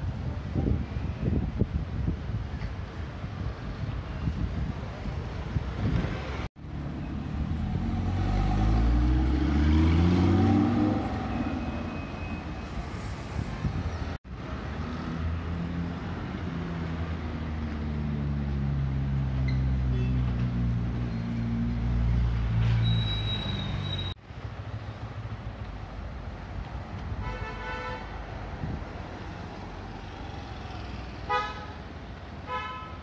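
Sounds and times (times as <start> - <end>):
street noise: 0.0 - 33.0
sports car accelerating away: 7.3 - 11.3.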